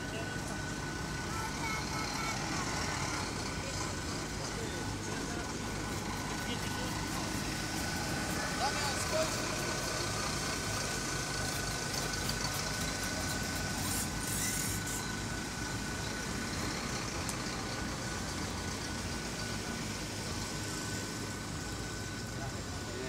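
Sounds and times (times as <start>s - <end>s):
engine-like rumble: 0.0s - 23.0s
brief hiss: 13.4s - 15.2s.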